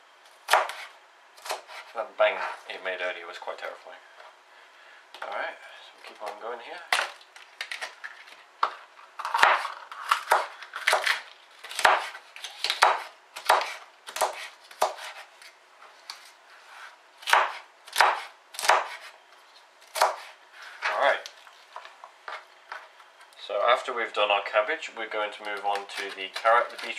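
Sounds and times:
knife chopping cabbage on plastic board: 0.5 - 1.9, 9.2 - 15.3, 17.2 - 19.1, 19.9 - 20.9, 25.4 - 26.9.

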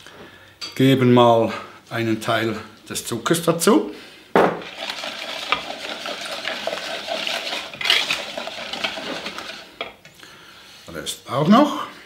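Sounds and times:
whisk beating in glass bowl: 4.6 - 9.9.

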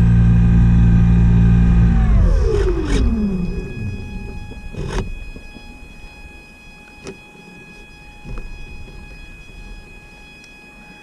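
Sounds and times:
low rumble: 0.0 - 6.2
faint high whine: 0.0 - 11.0.

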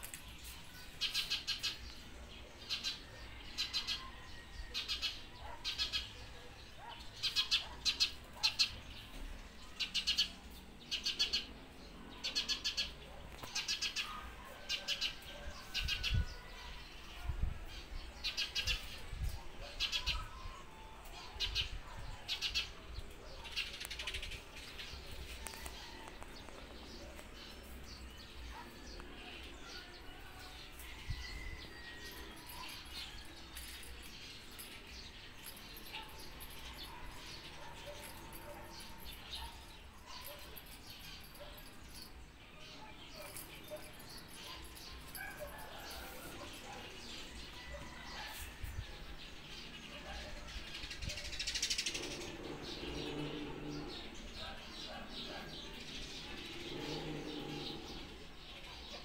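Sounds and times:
bird chirping: 49.1 - 59.0.

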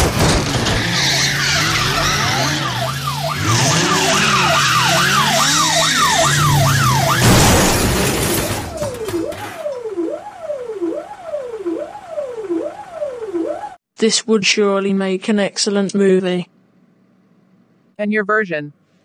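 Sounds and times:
car engine drone: 0.0 - 10.1
tyres skidding: 0.0 - 10.1
police siren wailing: 0.6 - 13.8.

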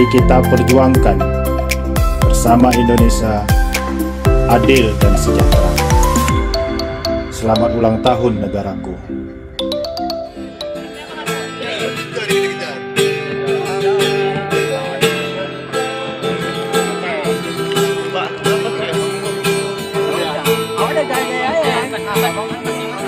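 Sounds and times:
strummed acoustic guitar: 10.5 - 23.0
person singing: 13.4 - 18.4.

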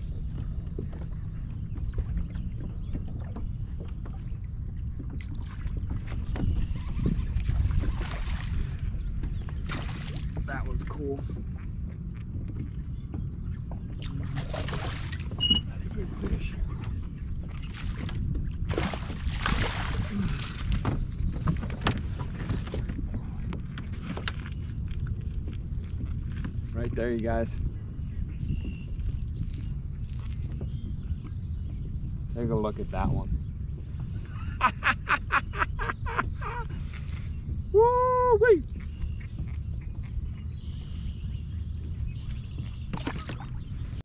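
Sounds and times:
waves slapping against hull: 0.0 - 44.0
wind buffeting microphone: 0.0 - 44.0.

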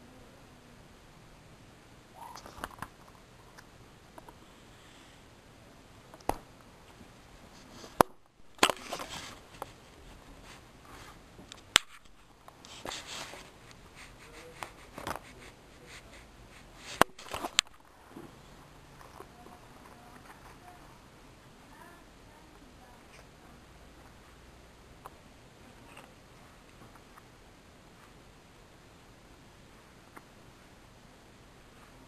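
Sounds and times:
rustling: 6.1 - 22.0.

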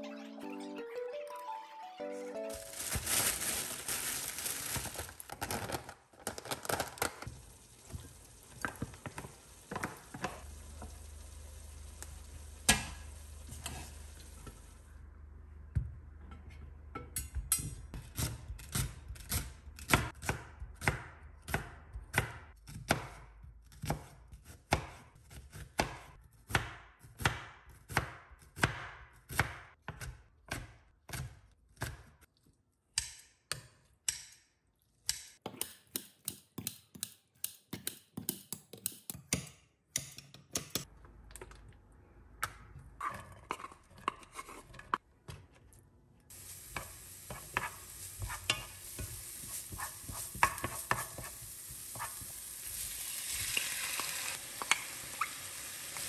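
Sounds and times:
steady hiss: 46.3 - 56.0
knife chopping on wooden board: 46.8 - 52.3.

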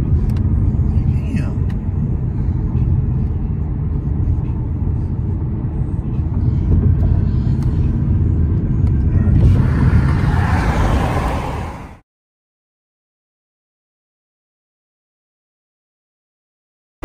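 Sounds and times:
car engine and road rumble: 0.0 - 12.0
loud rushing noise: 9.2 - 12.0.

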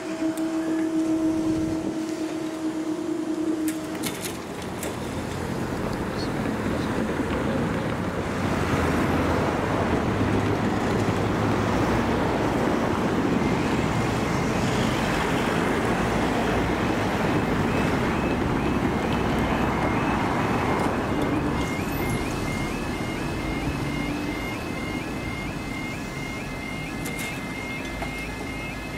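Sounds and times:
vehicle rumble: 0.0 - 28.9
level crossing alarm: 9.9 - 28.9.

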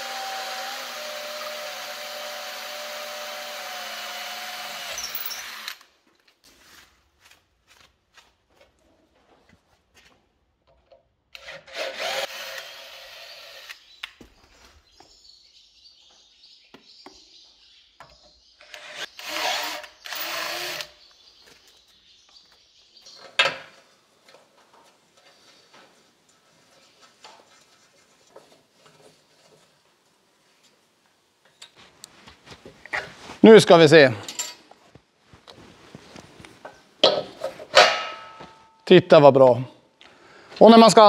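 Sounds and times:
electric drill boring metal: 0.0 - 5.9, 11.4 - 13.8, 18.7 - 21.0.

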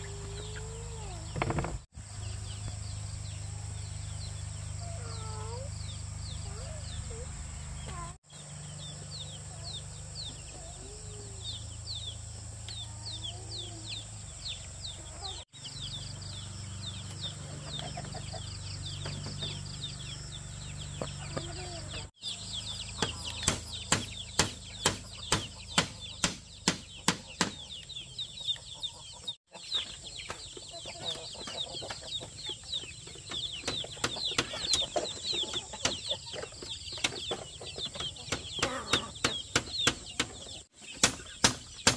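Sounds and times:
chicks peeping: 0.0 - 41.9
sharp knocks: 1.4 - 1.9, 23.0 - 27.6, 38.3 - 41.9.

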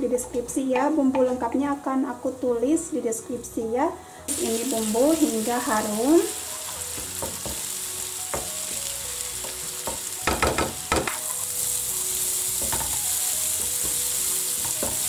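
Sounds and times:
paste sizzling in hot oil: 4.3 - 15.0.

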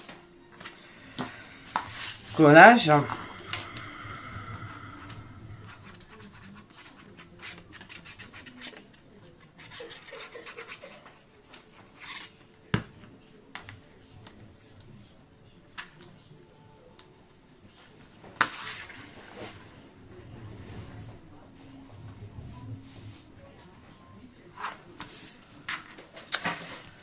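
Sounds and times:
paper scratching and rubbing: 5.8 - 11.2.

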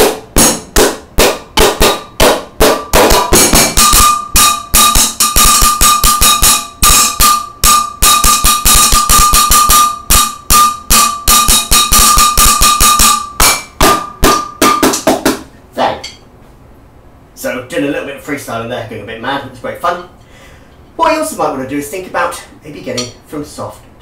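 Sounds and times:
drumsticks drumming on a metal pot: 0.0 - 15.3.

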